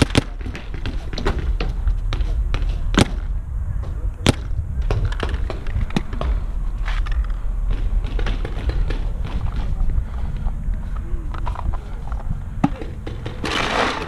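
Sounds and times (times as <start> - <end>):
paintball markers firing: 0.0 - 1.4
steady low rumble: 0.0 - 14.0.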